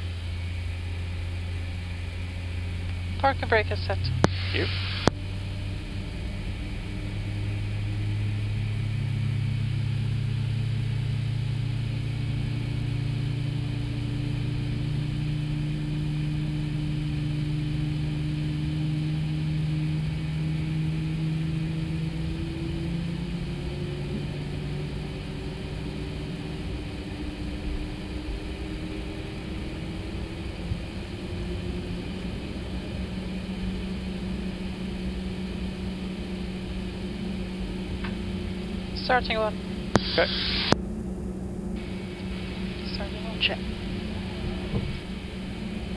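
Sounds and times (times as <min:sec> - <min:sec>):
jet engine spooling up: 0:00.0 - 0:45.9.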